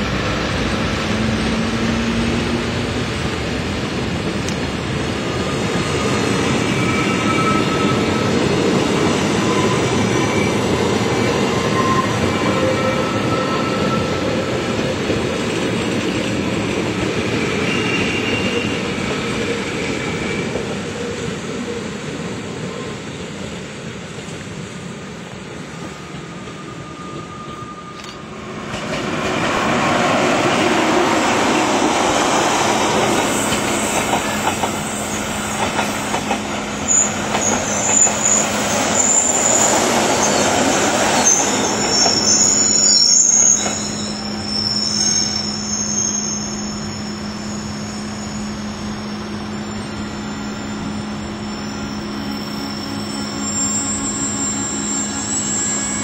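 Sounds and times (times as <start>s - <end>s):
train rumbling over rails: 0.0s - 56.0s
wheels squealing: 29.3s - 56.0s.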